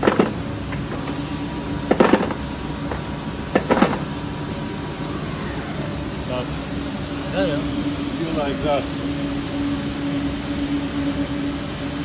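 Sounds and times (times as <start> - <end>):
machine tool hum: 0.0 - 12.0.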